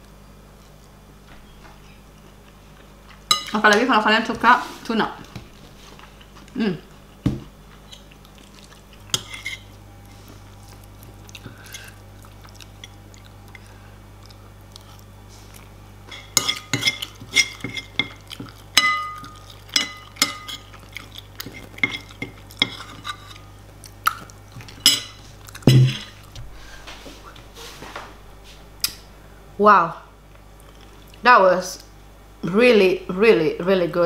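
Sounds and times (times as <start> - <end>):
metal spoon clinking on ceramic bowl: 18.8 - 20.6.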